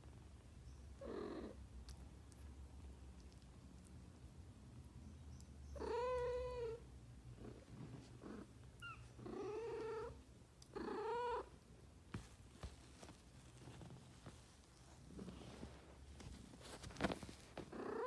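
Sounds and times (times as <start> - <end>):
cat purring: 1.0 - 2.4, 5.7 - 11.5, 12.9 - 18.0.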